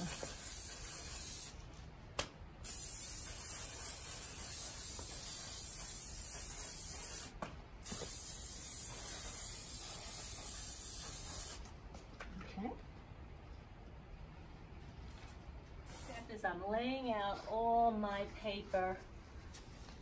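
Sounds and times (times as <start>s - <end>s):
aerosol can hissing: 0.0s - 1.5s, 2.6s - 11.6s.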